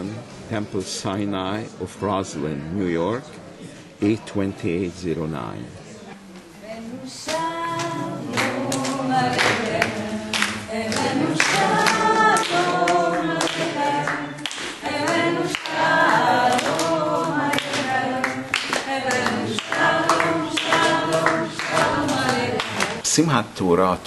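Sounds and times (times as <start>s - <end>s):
group singing unaccompanied: 6.6s - 23.1s
hand clapping: 7.3s - 23.0s.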